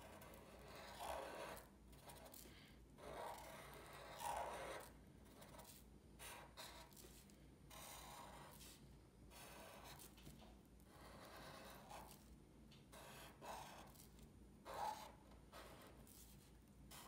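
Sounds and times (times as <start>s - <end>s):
marker strokes on paper: 3.1s - 10.2s, 10.9s - 12.3s, 12.9s - 17.0s.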